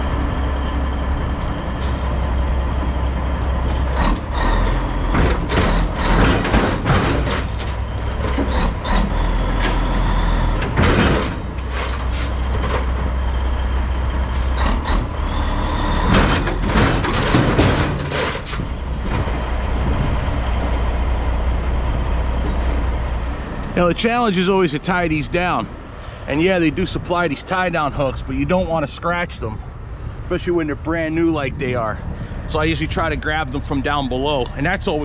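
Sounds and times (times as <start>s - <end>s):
diesel truck engines idling: 0.0s - 35.0s
air brake hiss: 1.8s - 2.1s.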